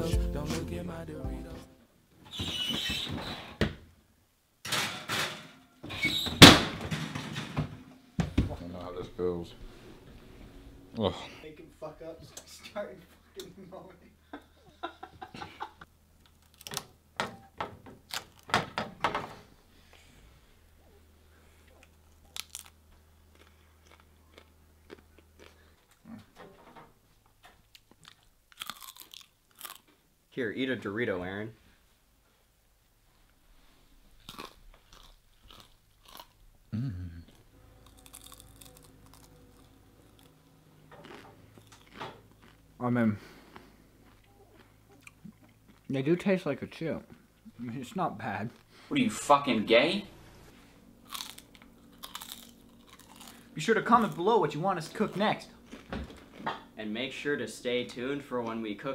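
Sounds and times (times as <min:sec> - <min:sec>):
chip crunching and chewing: 0:16.2 - 0:16.9, 0:21.6 - 0:26.2, 0:27.7 - 0:30.0, 0:34.2 - 0:36.4, 0:37.8 - 0:45.9, 0:51.0 - 0:56.7
person grunting: 0:36.7 - 0:37.3.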